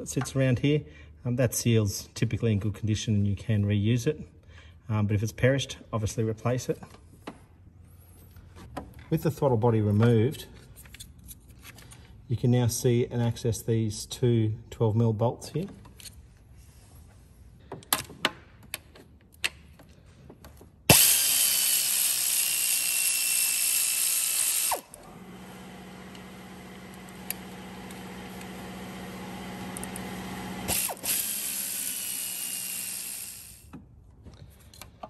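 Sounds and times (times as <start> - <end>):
power ratchet running: 20.9 - 33.7.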